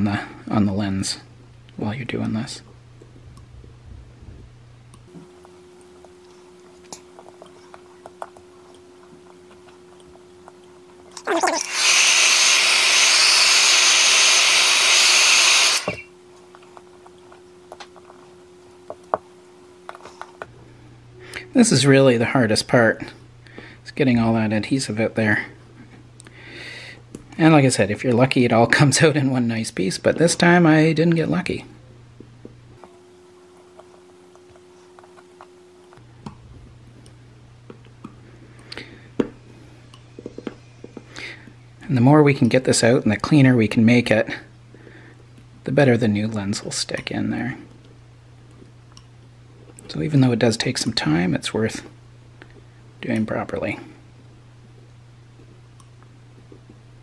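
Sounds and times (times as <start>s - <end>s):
faint steady hum: 0.0s - 57.0s
heat gun blowing hot air: 11.4s - 16.1s.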